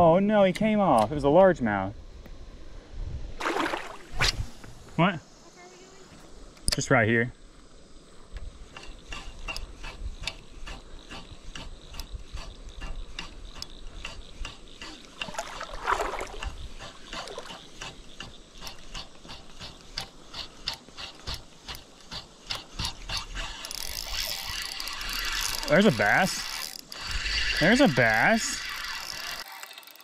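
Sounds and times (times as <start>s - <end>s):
fishing reel gears clicking: 17.1s - 30.0s.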